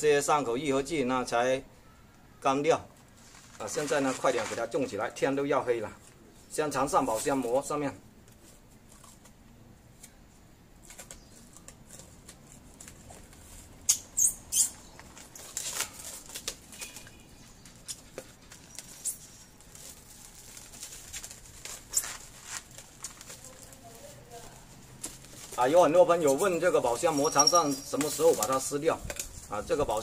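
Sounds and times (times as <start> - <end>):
cling film crinkling: 3.0 - 4.9, 10.8 - 30.0.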